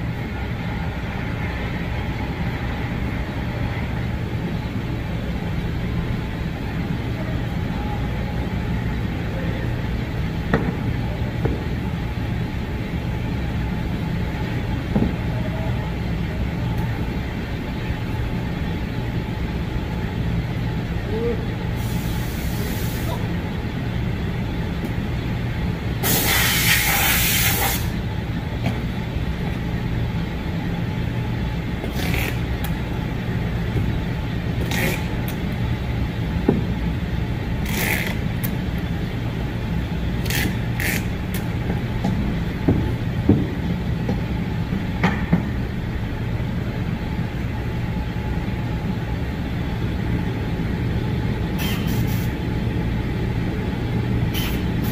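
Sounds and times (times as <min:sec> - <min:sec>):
low mechanical rumble with hum: 0:00.0 - 0:54.9
air hissing out: 0:21.7 - 0:23.2, 0:26.0 - 0:28.0, 0:51.6 - 0:52.3, 0:54.3 - 0:54.9.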